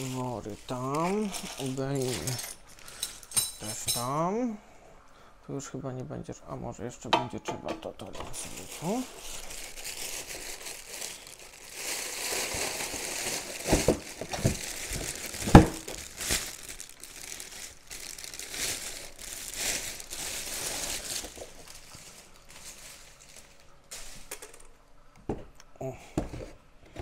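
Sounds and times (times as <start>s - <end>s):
plastic bag crinkling: 0.0s - 3.8s, 8.0s - 24.8s.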